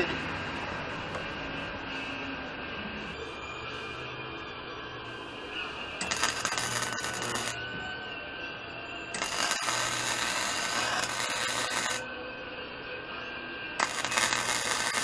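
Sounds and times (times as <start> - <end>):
welder arc: 6.0 - 7.6, 9.1 - 12.1, 13.8 - 15.0.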